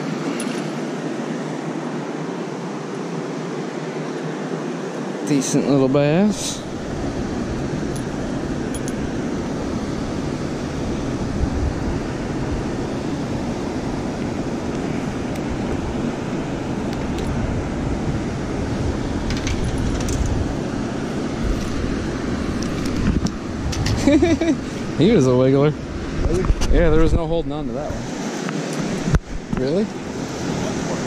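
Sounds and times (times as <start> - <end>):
wind rumble on microphone: 6.2 - 28.1.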